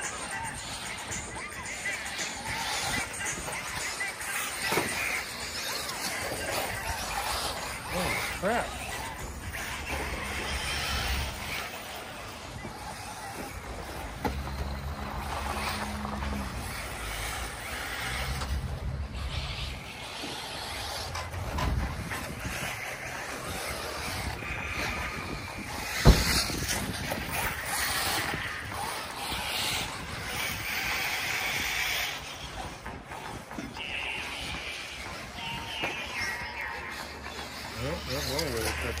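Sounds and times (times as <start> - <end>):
radio-controlled cars running: 0.0 - 39.0
wind on microphone: 20.8 - 36.5.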